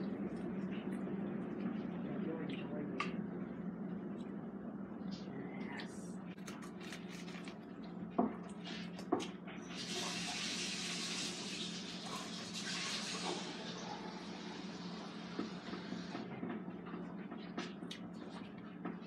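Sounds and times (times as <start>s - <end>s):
chewing crusty bread: 6.4s - 8.6s.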